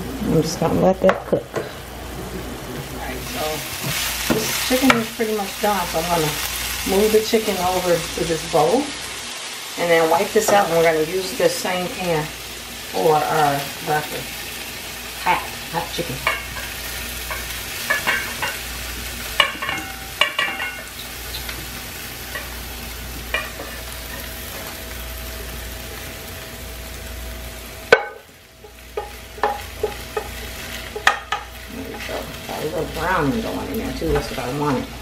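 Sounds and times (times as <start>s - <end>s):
chicken sizzling in a frying pan: 0.0s - 35.0s
utensil scraping and clinking on pan: 16.2s - 18.7s, 19.4s - 21.6s, 23.2s - 24.7s, 29.0s - 33.1s.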